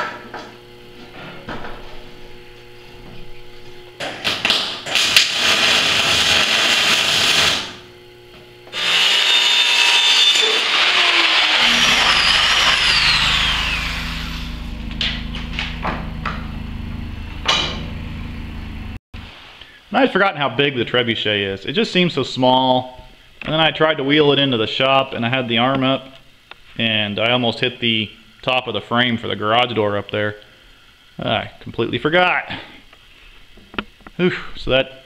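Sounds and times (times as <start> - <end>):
low steady hum: 0.1 - 4.0, 11.6 - 19.0
power saw cutting plastic pipe: 8.7 - 16.4.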